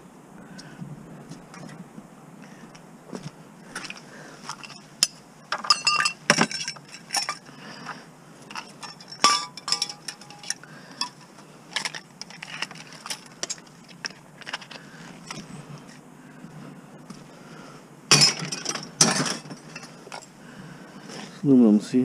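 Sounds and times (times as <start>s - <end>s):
metal parts clinking: 4.5s - 7.5s, 8.5s - 15.4s, 18.1s - 20.3s.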